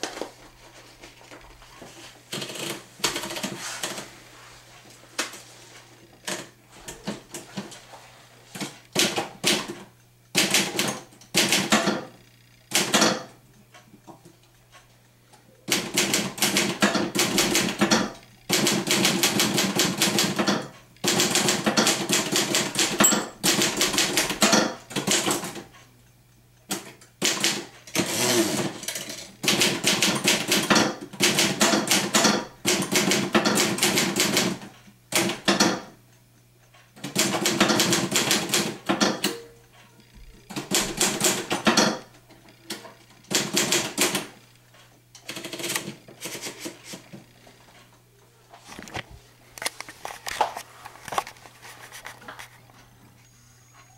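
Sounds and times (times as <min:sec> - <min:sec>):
manual typewriter typing: 0:02.3 - 0:04.1, 0:08.5 - 0:12.1, 0:12.7 - 0:13.3, 0:15.7 - 0:25.8, 0:26.7 - 0:35.9, 0:37.0 - 0:39.5, 0:40.4 - 0:44.4, 0:45.2 - 0:47.0.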